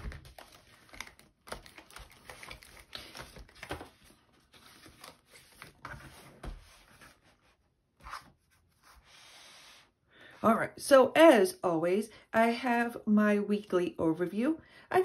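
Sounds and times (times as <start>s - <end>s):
planner rustling and tapping: 0.0s - 7.2s
paper pages flipping: 0.0s - 9.0s.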